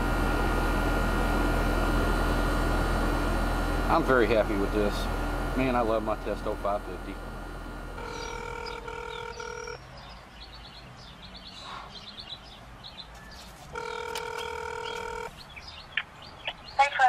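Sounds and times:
birds chirping: 4.0 - 17.0
telephone ringback tone: 8.0 - 9.8, 13.7 - 15.3.

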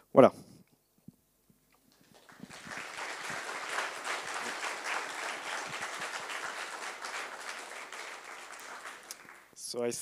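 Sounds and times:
audience applauding: 1.9 - 9.6.

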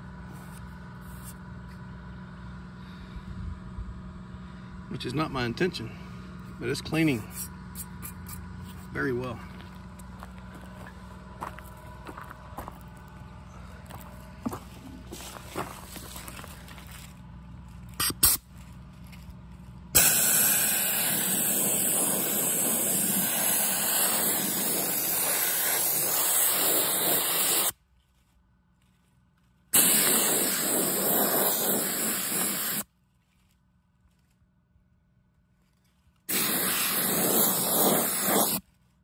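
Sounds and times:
soda blaster hissing: 20.0 - 27.7, 29.8 - 32.8, 36.3 - 38.6.

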